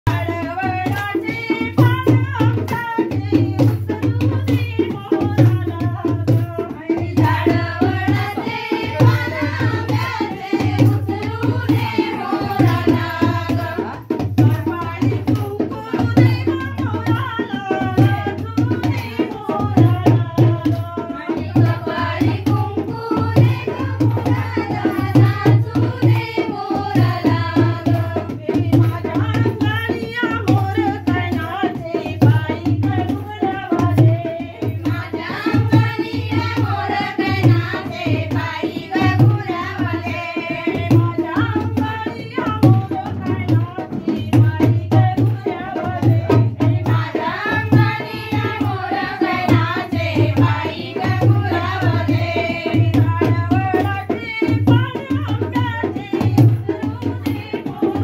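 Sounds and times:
hand-played barrel drum: 0.0s - 58.0s
group singing folk song: 7.0s - 14.0s, 21.4s - 28.4s, 34.9s - 40.8s, 45.8s - 53.4s.

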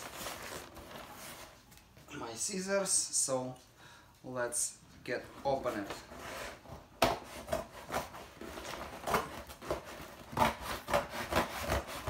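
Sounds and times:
tape and cardboard crinkling: 0.0s - 2.0s, 5.9s - 12.0s
scissors cutting packing tape: 7.5s - 12.0s.

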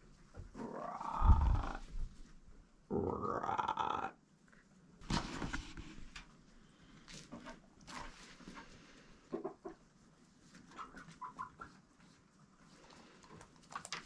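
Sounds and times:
quiet chicken clucks: 8.4s - 12.3s.

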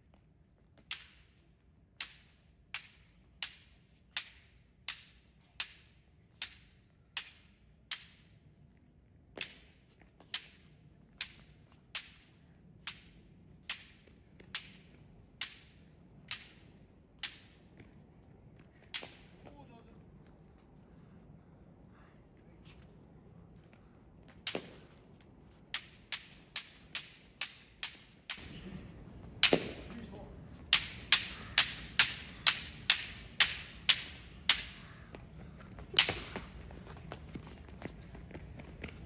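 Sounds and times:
bamboo sword striking target: 29.4s - 29.9s.

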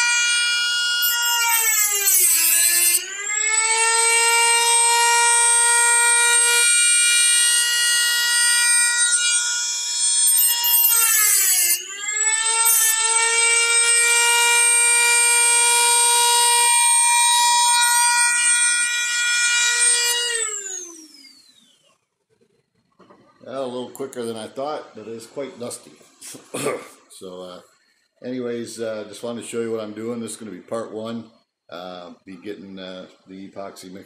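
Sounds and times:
rotary tool whining: 0.0s - 22.9s.

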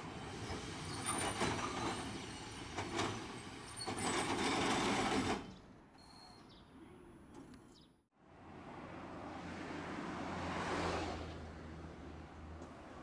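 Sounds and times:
streetcar rattling on rails: 0.0s - 5.7s.

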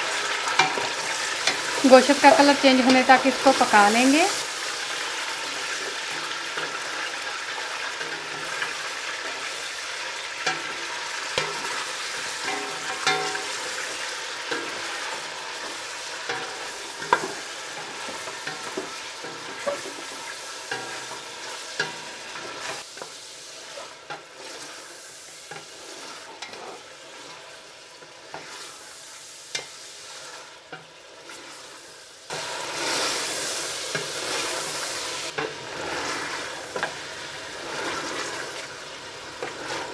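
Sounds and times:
meat sizzling in hot oil: 0.0s - 39.9s.

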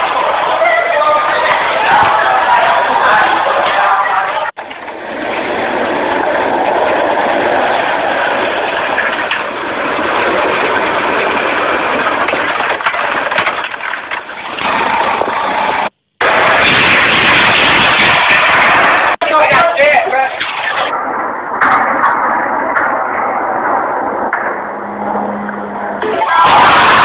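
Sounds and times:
dense rush of noise: 0.0s - 27.0s.

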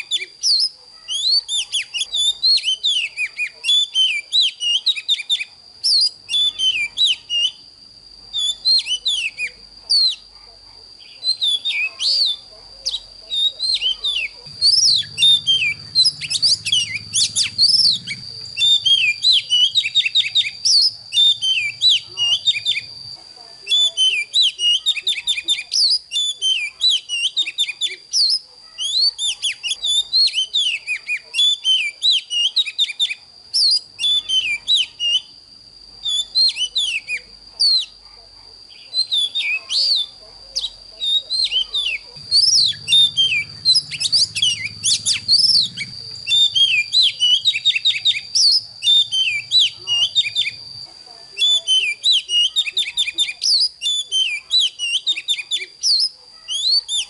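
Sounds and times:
bird singing whistles and chirps: 0.0s - 7.7s, 8.3s - 10.3s, 11.0s - 23.0s, 23.6s - 35.4s, 36.0s - 38.0s, 38.7s - 57.0s
steady high-pitched whine: 4.9s - 28.5s, 32.9s - 52.1s.

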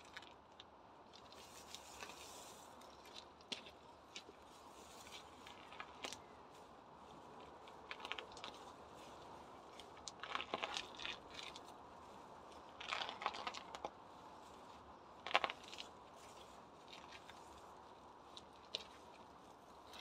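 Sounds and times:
pebbles clicking and rattling: 7.6s - 8.7s, 9.8s - 11.7s, 12.7s - 13.9s, 15.2s - 17.4s.

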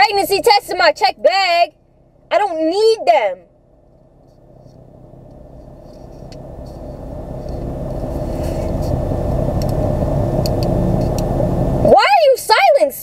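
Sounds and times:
low rumble: 3.5s - 12.0s.

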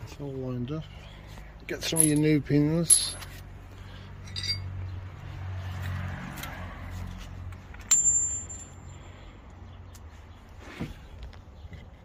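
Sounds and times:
metallic clink ringing: 1.8s - 3.3s, 4.2s - 4.7s, 7.9s - 8.9s.

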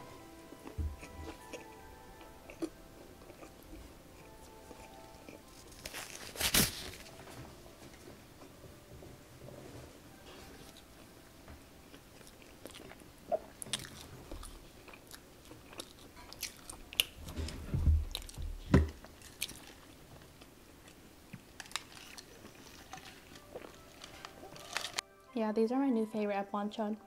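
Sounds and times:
chewing crunches: 1.0s - 6.8s, 11.9s - 17.2s, 19.0s - 25.0s.

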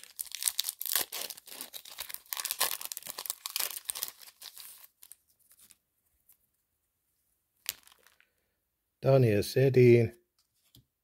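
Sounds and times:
foil wrapper crinkling and ripping: 0.0s - 5.8s, 7.6s - 8.2s.

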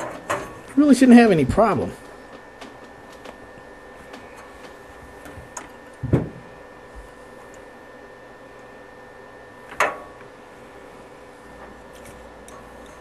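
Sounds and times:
low steady hum: 0.0s - 13.0s
dull thump: 6.0s - 6.4s.

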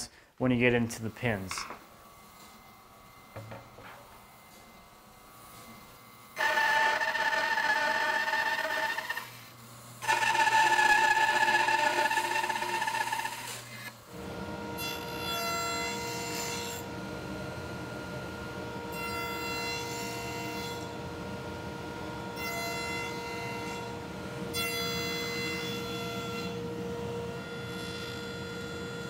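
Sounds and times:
table saw running: 1.5s - 29.0s
saw blade cutting through wood: 6.4s - 13.9s
bandsaw cutting: 6.4s - 14.0s.

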